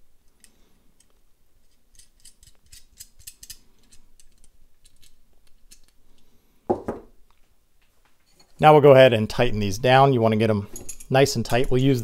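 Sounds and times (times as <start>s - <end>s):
metal nuts clicking on screws: 0.3s - 6.3s.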